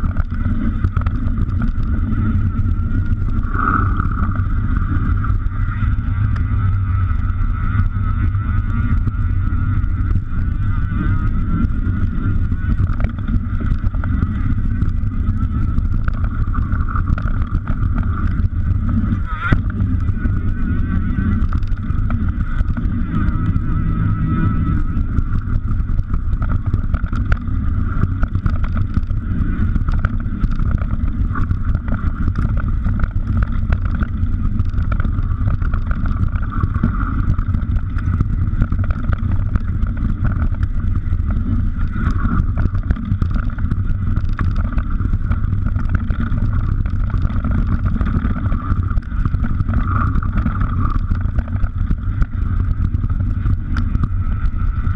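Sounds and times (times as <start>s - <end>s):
bike rattling over ground: 0.0s - 54.9s
wind buffeting microphone: 0.0s - 54.9s
small knocks and clicks: 12.8s - 18.5s.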